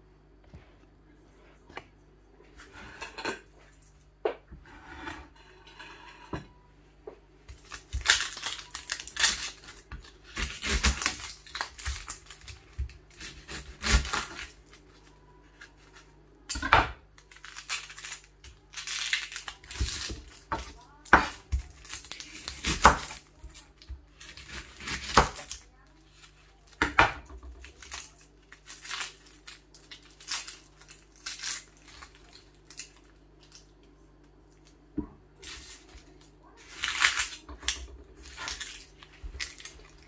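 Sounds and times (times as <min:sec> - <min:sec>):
onion skin scraping and rustling: 0:07.5 - 0:16.5, 0:17.2 - 0:26.8, 0:27.5 - 0:33.7, 0:35.4 - 0:40.0.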